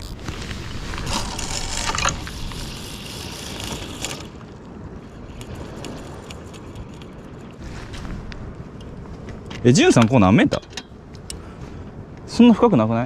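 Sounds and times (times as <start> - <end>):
line hissing off reel: 0.0 - 4.3.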